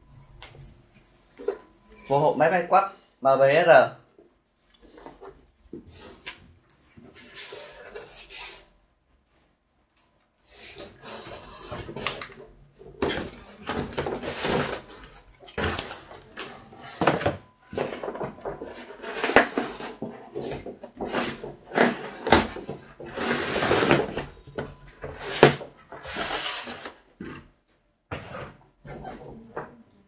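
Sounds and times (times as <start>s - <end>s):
cardboard boxes scraping: 15.6s - 27.5s
boxes knocking down: 17.0s - 26.8s.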